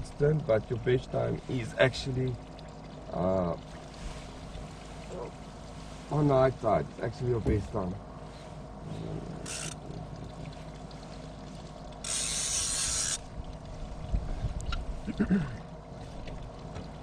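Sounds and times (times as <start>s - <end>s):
fishing reel drag buzzing: 9.4s - 9.8s, 12.0s - 13.3s.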